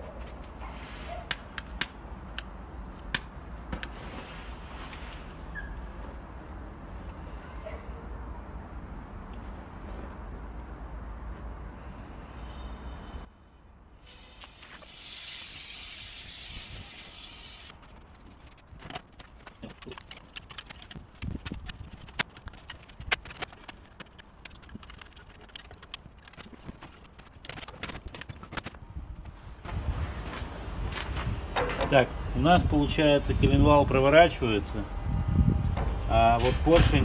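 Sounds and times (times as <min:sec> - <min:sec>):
loud hiss: 0:12.3 - 0:17.7.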